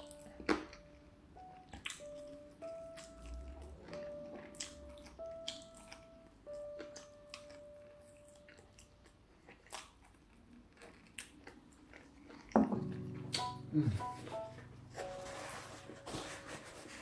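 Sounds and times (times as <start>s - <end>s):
person chewing food: 0.0s - 17.0s.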